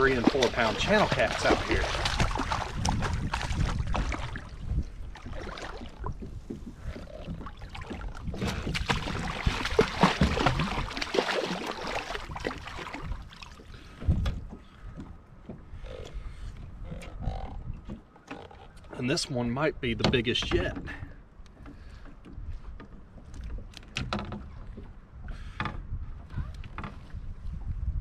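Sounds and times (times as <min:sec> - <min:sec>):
wind on microphone: 0:00.0 - 0:11.1, 0:11.8 - 0:18.0, 0:24.4 - 0:28.0
knocks and clicks of fishing gear: 0:14.0 - 0:15.6, 0:20.0 - 0:24.9.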